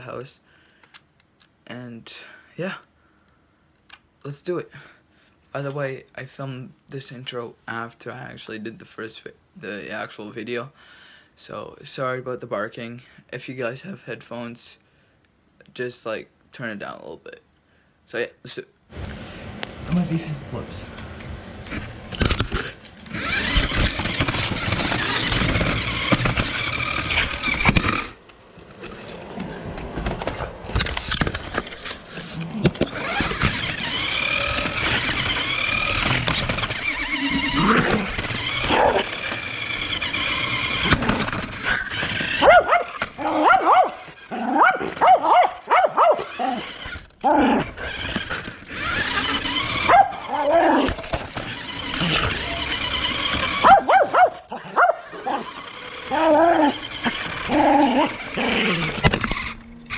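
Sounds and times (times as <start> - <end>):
rc car motor whining: 21.6 - 59.9
small dog barking: 42.4 - 46.4, 49.8 - 50.4, 53.6 - 55.5.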